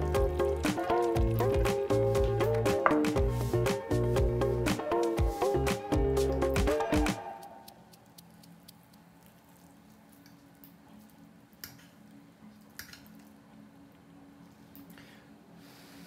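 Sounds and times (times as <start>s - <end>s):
fork clicking on plate: 7.5s - 10.4s
meat squishing under fork: 7.6s - 11.9s.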